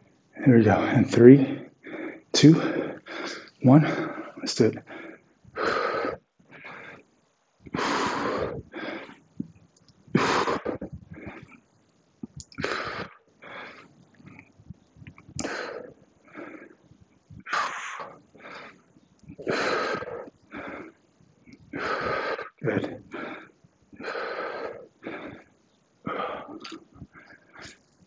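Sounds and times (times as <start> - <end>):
man breathing hard: 1.5 - 7.1, 7.7 - 9.3, 12.6 - 14.4, 15.4 - 16.8, 17.4 - 21.1, 21.7 - 28.0.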